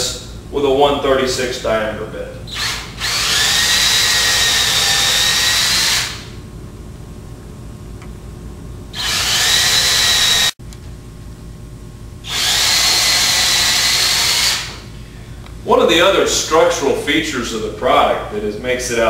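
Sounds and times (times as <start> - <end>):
cordless drill whining: 2.5 - 6.3, 9.0 - 10.6, 12.3 - 14.8.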